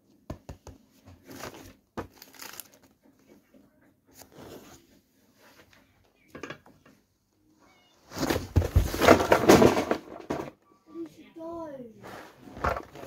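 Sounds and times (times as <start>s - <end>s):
person falling onto floor: 8.1s - 10.5s.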